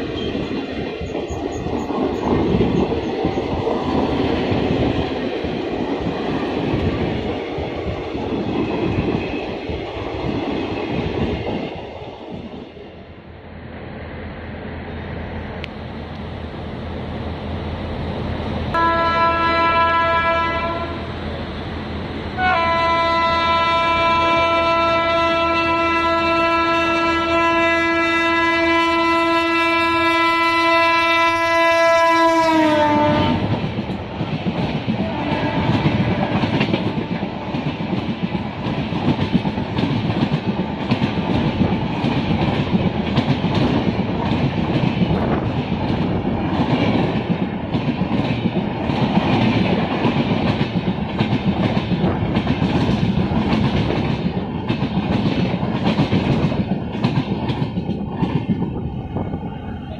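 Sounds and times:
locomotive horn chord: 0:18.8 - 0:21.0, 0:22.4 - 0:33.4
train wheels clacking over rail joints: 0:33.0 - 0:58.8.

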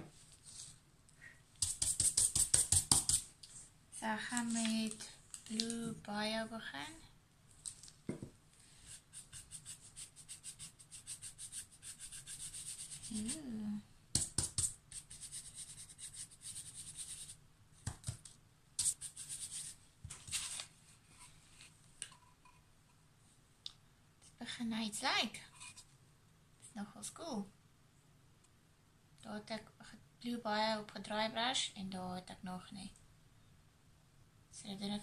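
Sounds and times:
paintbrush scratchy strokes: 0:08.7 - 0:13.6, 0:14.4 - 0:17.4, 0:18.8 - 0:19.8.

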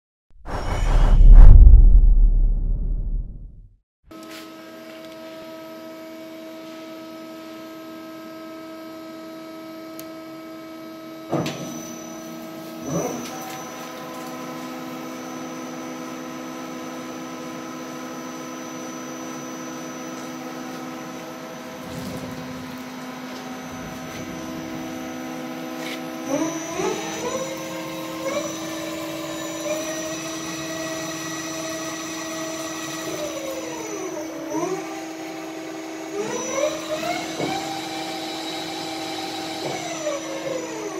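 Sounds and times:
spindle whine rising in pitch: 0:00.5 - 0:03.5.

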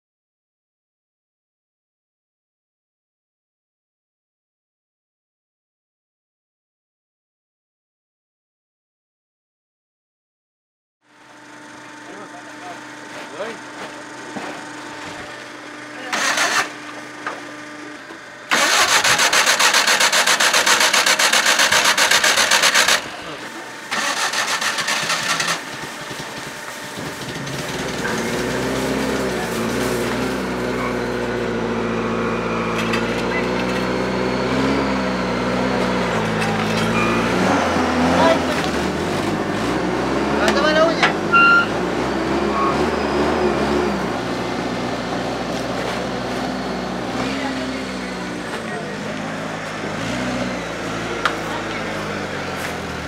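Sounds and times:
traffic noise: 0:18.5 - 0:53.0
short high beep: 0:36.9 - 0:37.6, 0:41.3 - 0:43.7
faint voices: 0:47.0 - 0:53.0.

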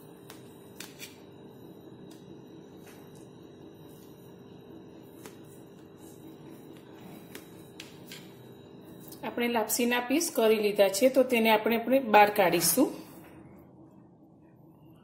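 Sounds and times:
faint hum: 0:00.0 - 0:15.0
knife cutting food on steel plate: 0:00.8 - 0:01.2.

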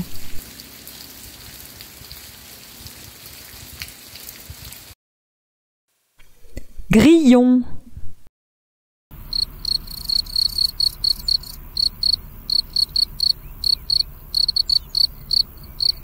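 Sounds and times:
cricket chirping: 0:09.2 - 0:16.0.

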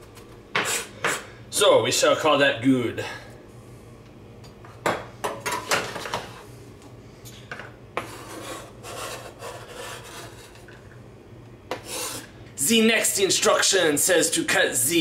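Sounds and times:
knife scraping cutting board: 0:00.6 - 0:01.3, 0:08.0 - 0:10.8, 0:11.7 - 0:12.3.

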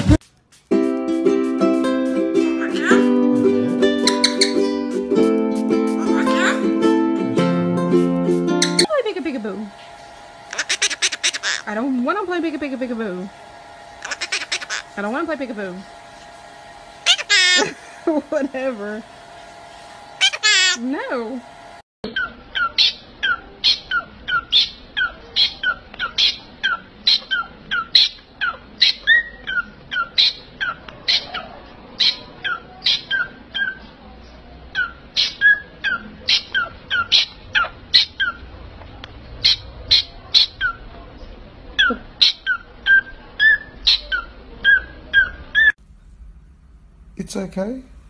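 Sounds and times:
cockatiel calling: 0:02.6 - 0:03.1, 0:04.0 - 0:04.8, 0:06.0 - 0:06.7, 0:10.5 - 0:11.8, 0:14.0 - 0:15.0, 0:17.0 - 0:17.8, 0:20.2 - 0:20.8, 0:22.1 - 0:33.9, 0:34.7 - 0:38.4, 0:39.4 - 0:40.8, 0:41.8 - 0:45.7.

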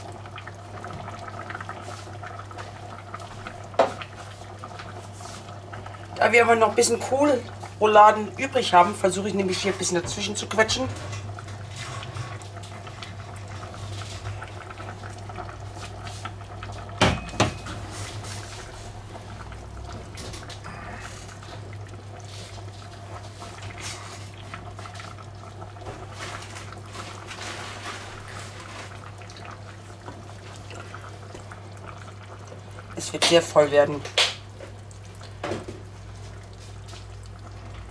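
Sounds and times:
steady low hum: 0:17.2 - 0:25.5.

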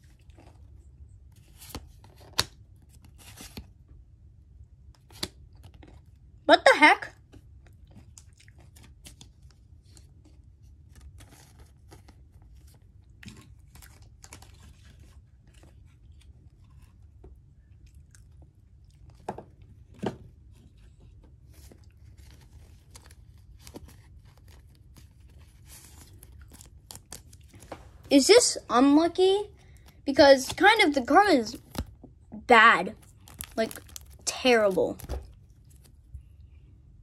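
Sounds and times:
low steady hum: 0:00.0 - 0:37.0
person chewing crunchy chips: 0:07.8 - 0:08.9, 0:17.8 - 0:19.2, 0:33.0 - 0:34.4.

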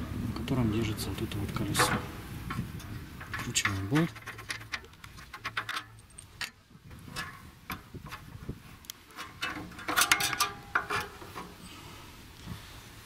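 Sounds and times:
metal clicks knocks and rubbing: 0:01.3 - 0:11.6.

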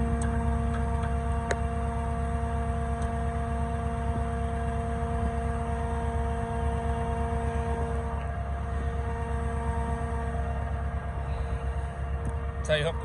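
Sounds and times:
pump engine droning: 0:00.0 - 0:13.0
steady hum: 0:00.0 - 0:13.0.

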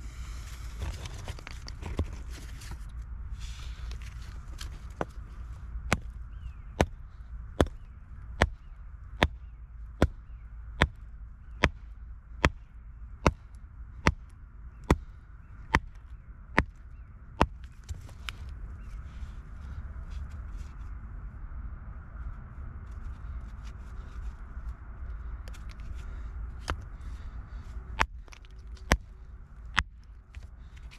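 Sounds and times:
hammer striking rock: 0:08.4 - 0:08.6, 0:09.2 - 0:09.4, 0:10.0 - 0:10.2, 0:10.8 - 0:11.0, 0:11.6 - 0:11.8, 0:12.4 - 0:12.6.

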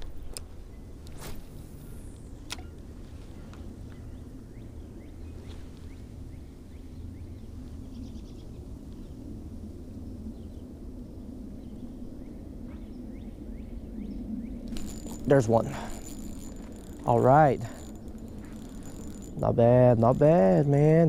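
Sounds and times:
low outdoor rumble: 0:00.0 - 0:21.0
faint songbird chirps: 0:01.8 - 0:09.2, 0:10.3 - 0:17.0.

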